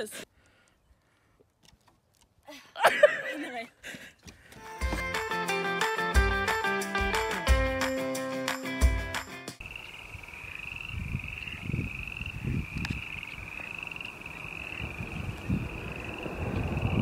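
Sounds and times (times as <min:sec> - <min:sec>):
frogs calling: 0:09.6 - 0:17.0
low rumble: 0:14.9 - 0:17.0.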